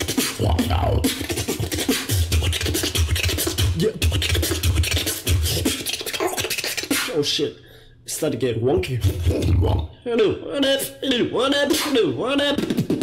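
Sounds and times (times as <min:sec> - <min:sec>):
beatboxing clicks and snare hits: 0:00.0 - 0:07.2, 0:11.7 - 0:13.0.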